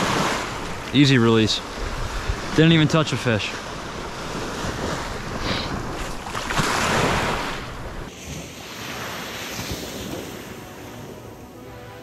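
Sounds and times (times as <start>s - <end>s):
ocean surf washing up beach: 0.0s - 12.0s
wind on the microphone: 1.7s - 2.6s.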